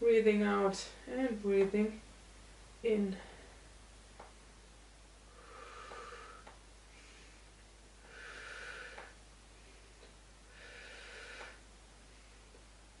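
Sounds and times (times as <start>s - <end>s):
woman breathing faintly: 5.2s - 12.7s.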